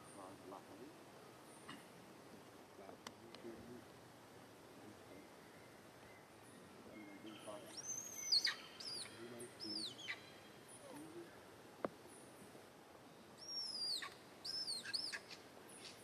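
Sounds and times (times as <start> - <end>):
baby monkey crying: 9.8 - 10.2.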